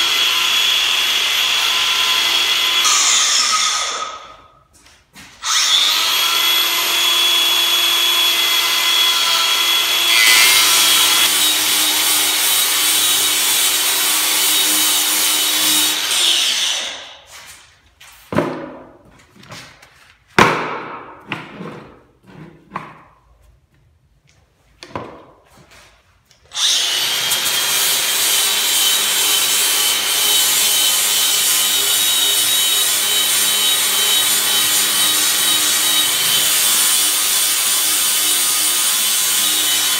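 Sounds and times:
angle grinder cutting wood: 0:00.0 - 0:04.3, 0:05.4 - 0:17.2, 0:26.5 - 0:39.9
knocks and scrapes: 0:17.2 - 0:24.0.

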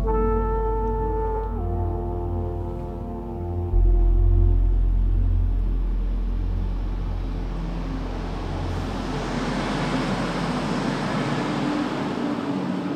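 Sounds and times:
electric train pulling in: 0:03.8 - 0:12.9
wheels rushing on rails: 0:06.6 - 0:12.9.

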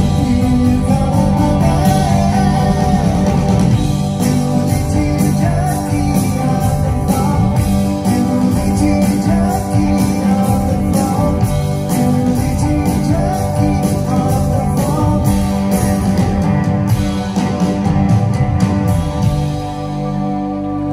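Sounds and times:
man singing lead vocal: 0:00.0 - 0:16.1
drums: 0:00.0 - 0:20.9
electric guitars: 0:00.0 - 0:20.9
keyboards: 0:00.0 - 0:20.9.

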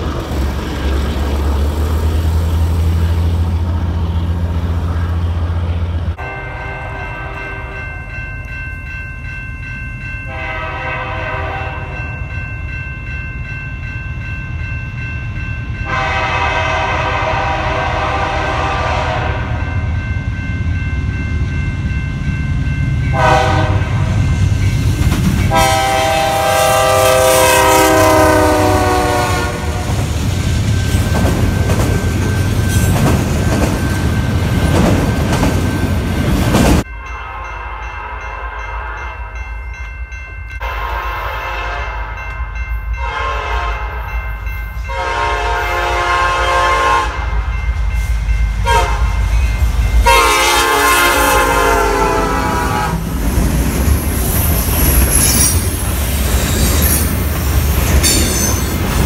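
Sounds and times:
train rumble: 0:00.0 - 0:59.0
locomotive air horn blasts: 0:06.2 - 0:08.0, 0:10.3 - 0:12.1, 0:15.8 - 0:19.7, 0:23.1 - 0:24.2, 0:25.5 - 0:30.0, 0:40.6 - 0:42.2, 0:43.0 - 0:44.1, 0:44.9 - 0:47.4, 0:48.6 - 0:49.2, 0:50.0 - 0:53.0.

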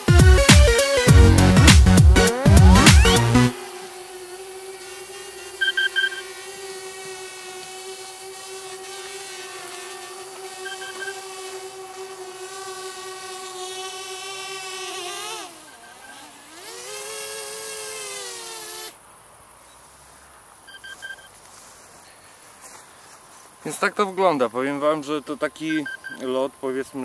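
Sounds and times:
drone propellers whining: 0:00.0 - 0:08.2, 0:15.2 - 0:17.0
short high beeps: 0:05.6 - 0:06.2, 0:10.6 - 0:11.1, 0:20.7 - 0:21.3, 0:25.7 - 0:26.2.

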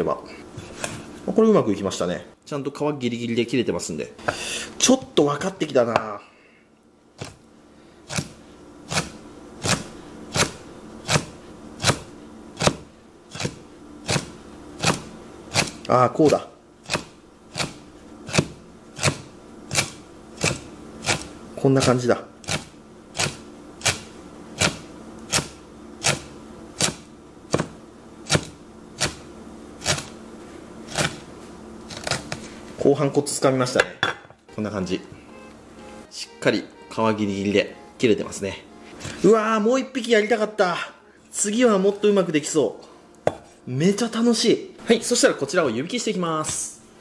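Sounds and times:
knife tapping wooden cutting board: 0:43.2 - 0:43.5.

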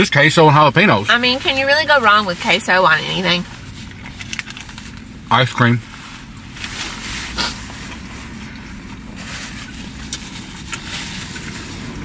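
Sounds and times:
low hum inside car: 0:00.0 - 0:12.0
napkin rustling: 0:05.9 - 0:12.0.

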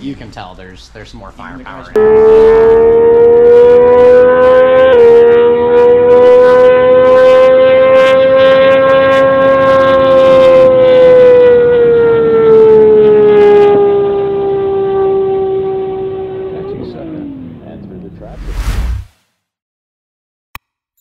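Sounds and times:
engine running at high rpm: 0:01.9 - 0:18.1.

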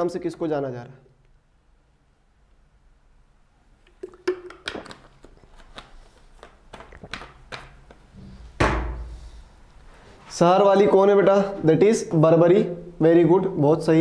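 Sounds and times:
person moving about: 0:04.6 - 0:12.0
loud thump: 0:08.6 - 0:09.2.

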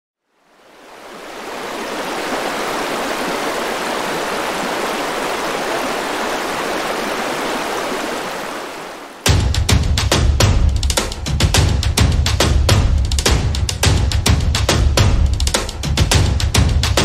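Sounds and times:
water rushing: 0:00.3 - 0:09.3.

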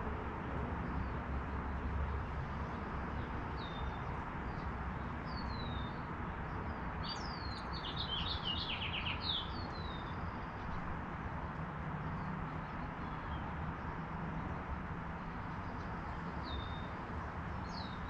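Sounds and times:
small songbirds chirping: 0:00.8 - 0:11.1, 0:11.9 - 0:18.0.

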